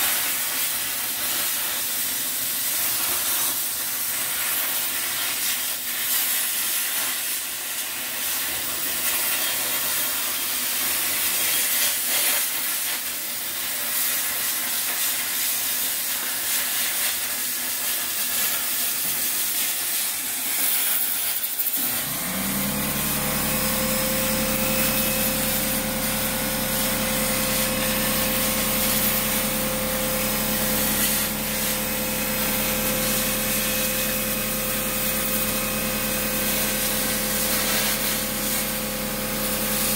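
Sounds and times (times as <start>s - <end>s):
plasma cutter hissing: 0.0s - 39.9s
motor humming: 21.8s - 39.9s.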